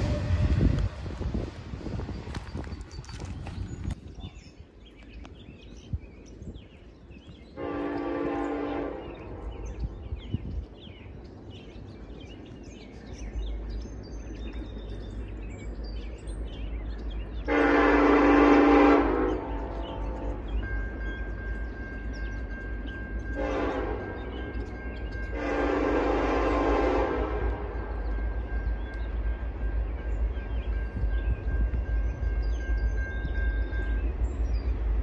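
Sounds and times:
locomotive air horn blasts: 0:00.0 - 0:01.0, 0:07.6 - 0:09.6, 0:17.5 - 0:20.5, 0:23.4 - 0:24.3, 0:25.3 - 0:27.9
train rumble: 0:00.0 - 0:35.0.

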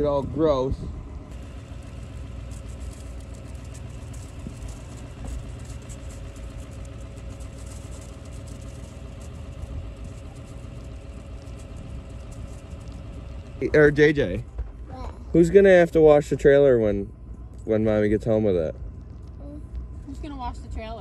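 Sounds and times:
truck engine idling: 0:00.0 - 0:21.0.

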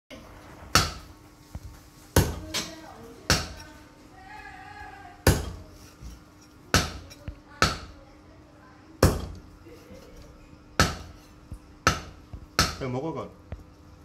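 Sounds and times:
cleaver chopping on wooden block: 0:05.3 - 0:05.6, 0:06.7 - 0:07.9, 0:09.0 - 0:09.4, 0:10.8 - 0:11.1, 0:11.8 - 0:12.9.

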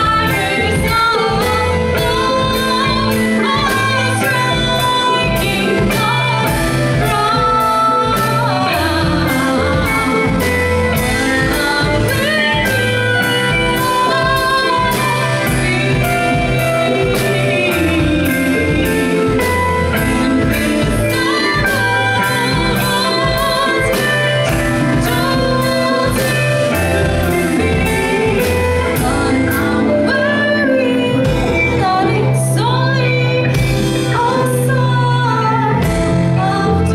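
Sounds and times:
drums beating: 0:00.0 - 0:30.3
bass guitar: 0:00.0 - 0:36.9
electric guitar: 0:00.0 - 0:36.9
keyboard: 0:00.0 - 0:36.9
woman singing: 0:00.0 - 0:36.9.

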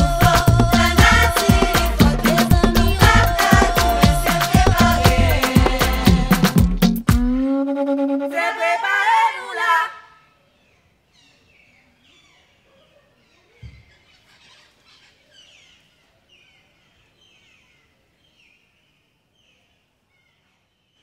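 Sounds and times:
bird chirping: 0:10.2 - 0:21.0.

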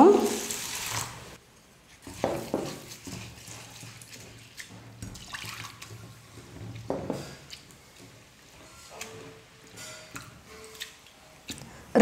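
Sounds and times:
water splashing: 0:00.0 - 0:01.4, 0:02.1 - 0:06.2
hand stirring wet rice in water: 0:00.0 - 0:11.9.

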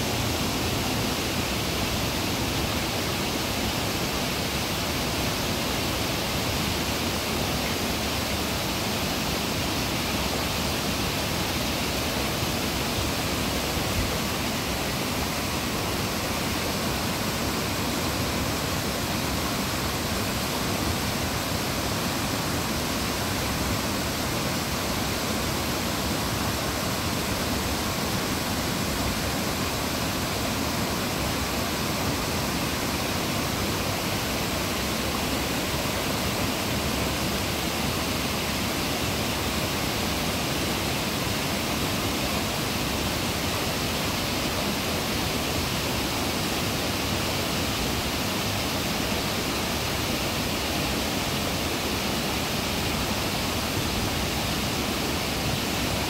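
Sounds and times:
creek cascading over rocks: 0:00.0 - 0:56.0.

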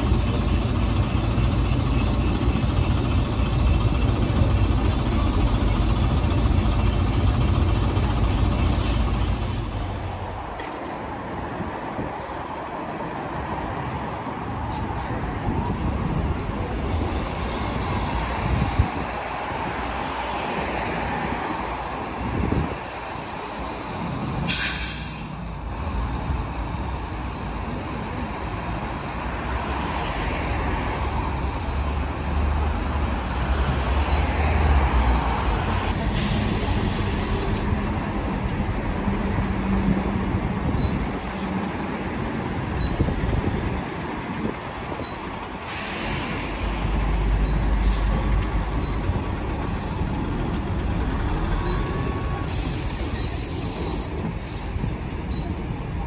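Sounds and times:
heavy vehicle engines rumbling: 0:00.0 - 0:56.0
air brakes hissing: 0:08.7 - 0:09.4, 0:22.9 - 0:25.4, 0:35.9 - 0:37.8, 0:45.6 - 0:48.3, 0:52.3 - 0:54.8.

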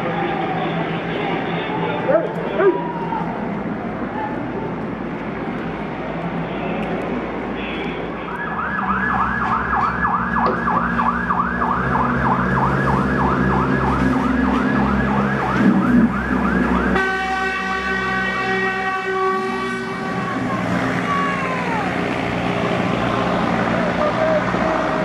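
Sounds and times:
siren yelping: 0:08.3 - 0:17.5, 0:18.8 - 0:22.4
steady horn tone: 0:16.8 - 0:21.6.

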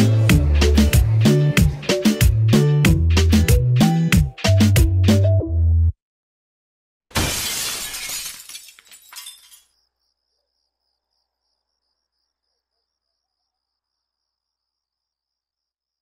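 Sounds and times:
glass shattering: 0:07.1 - 0:09.7
cricket chirps: 0:09.6 - 0:16.0.

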